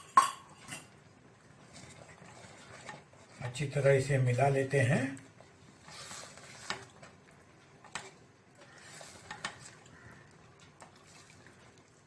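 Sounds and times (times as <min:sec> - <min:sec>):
spoon knocking against pot: 0:00.0 - 0:00.6
spoon scraping thick mash: 0:01.6 - 0:11.8.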